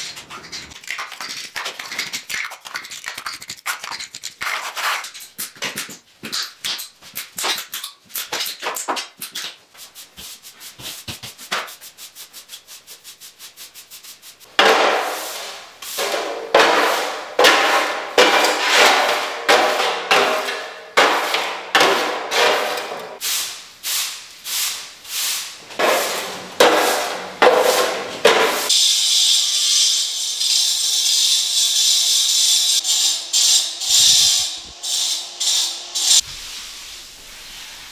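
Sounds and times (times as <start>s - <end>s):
broom sweeping a hard floor: 9.7s - 29.4s, 32.5s - 37.9s.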